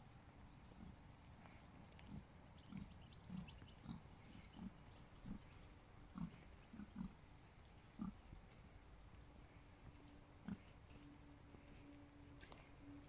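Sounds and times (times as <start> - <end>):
faint bird chirps: 0.0 - 13.0
pigs grunting: 0.8 - 8.8, 10.4 - 11.0.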